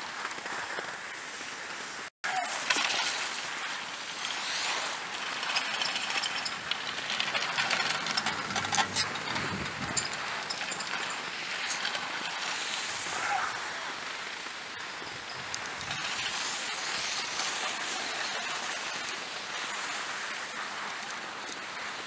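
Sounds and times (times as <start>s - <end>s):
skis hissing over snow: 0.0s - 22.0s.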